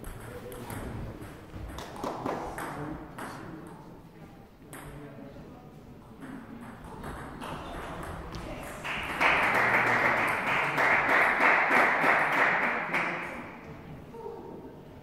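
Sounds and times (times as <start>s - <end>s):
crowd clapping: 8.7s - 13.7s.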